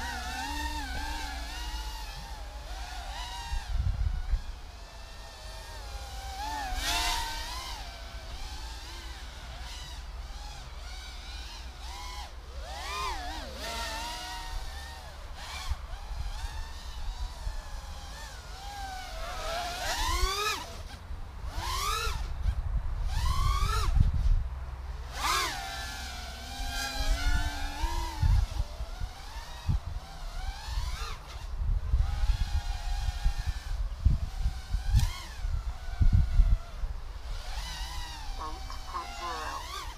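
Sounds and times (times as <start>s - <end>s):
drone propeller whine: 0.0s - 20.9s, 24.8s - 31.4s, 36.7s - 39.9s.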